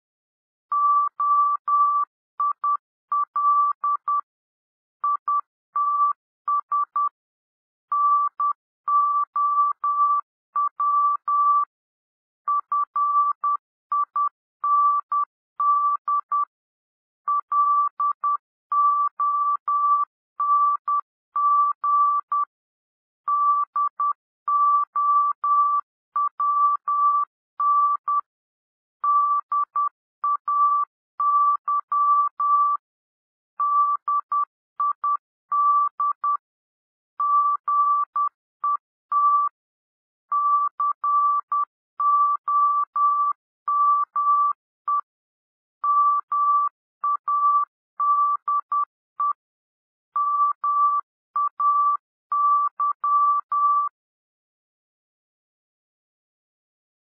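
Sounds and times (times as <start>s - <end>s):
morse code beeps: 37.2s - 39.6s, 40.4s - 45.1s, 45.8s - 49.5s, 50.1s - 54.0s.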